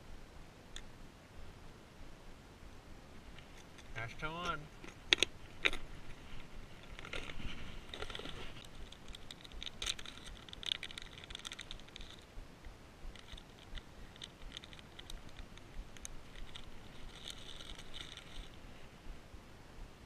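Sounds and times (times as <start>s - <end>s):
plastic bags crinkling: 6.8s - 12.3s, 13.2s - 18.6s.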